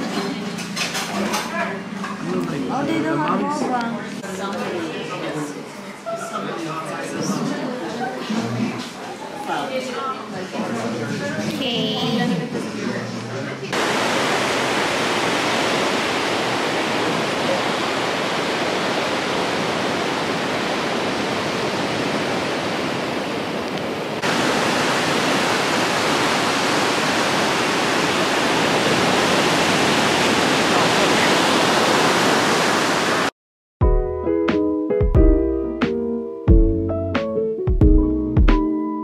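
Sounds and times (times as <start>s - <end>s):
ocean surf breaking: 13.7s - 33.3s.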